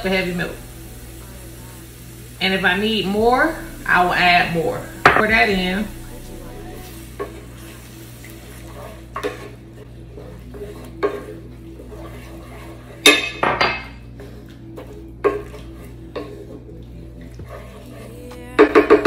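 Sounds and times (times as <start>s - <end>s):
low steady hum: 0.0s - 19.0s
wooden spatula stirring in skillet: 0.0s - 19.0s.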